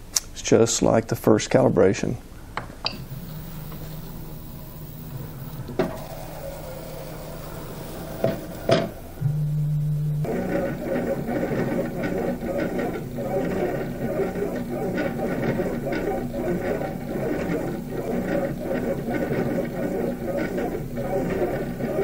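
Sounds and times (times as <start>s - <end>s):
stepper motors humming and whining: 3.0s - 22.0s.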